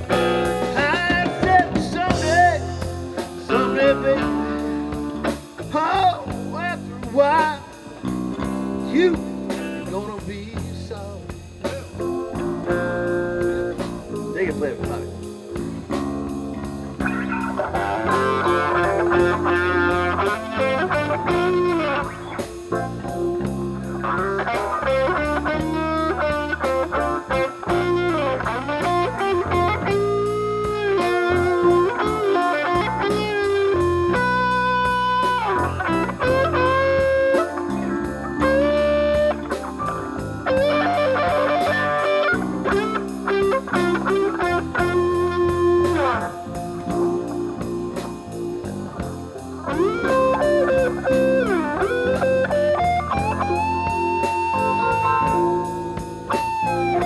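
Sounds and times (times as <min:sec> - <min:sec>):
blues band playing: 0:00.0 - 0:57.0
electric guitar solo: 0:11.7 - 0:57.0.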